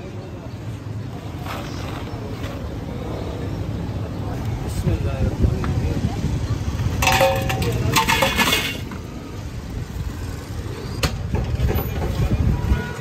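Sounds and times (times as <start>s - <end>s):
low traffic rumble: 0.0s - 13.0s
ice rattling into steel pot: 7.0s - 8.8s.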